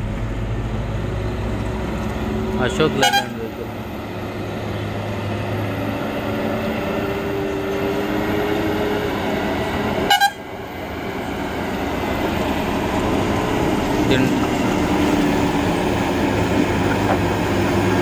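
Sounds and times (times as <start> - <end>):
diesel truck engine running: 0.0 - 18.0
vehicle horn toots: 3.0 - 3.5, 10.0 - 10.5.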